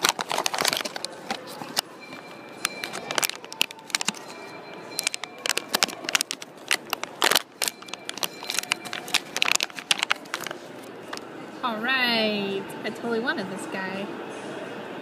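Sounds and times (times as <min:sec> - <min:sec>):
foil bag crinkling: 0:00.0 - 0:01.9, 0:02.6 - 0:11.2.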